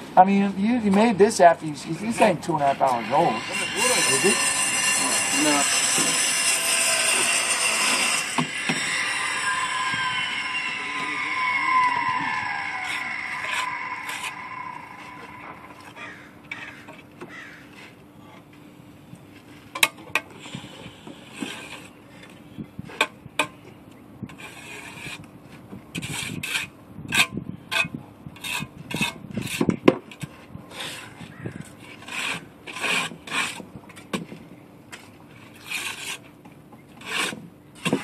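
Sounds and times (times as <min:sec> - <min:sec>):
trowel scraping mortar: 0:02.0 - 0:16.0, 0:20.4 - 0:22.0, 0:24.3 - 0:25.2, 0:26.0 - 0:33.7, 0:35.3 - 0:36.3, 0:37.0 - 0:38.0.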